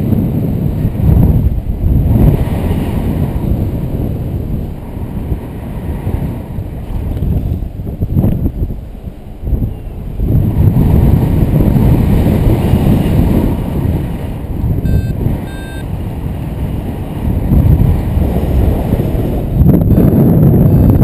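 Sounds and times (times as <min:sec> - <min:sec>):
wind buffeting microphone: 0:00.0 - 0:21.0
short electronic beeps: 0:14.8 - 0:15.9, 0:19.9 - 0:21.0.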